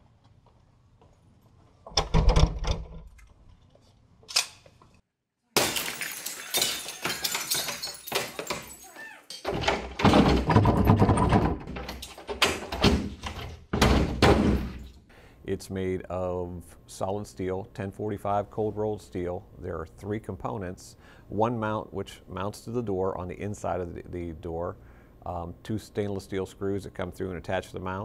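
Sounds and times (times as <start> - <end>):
glass window smashing: 5.6 - 13.2
heavy thuds on door: 12.8 - 14.8.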